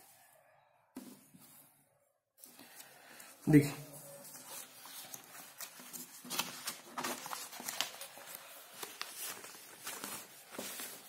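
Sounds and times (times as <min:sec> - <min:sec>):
paper rustling and crinkling: 0:02.4 - 0:11.0.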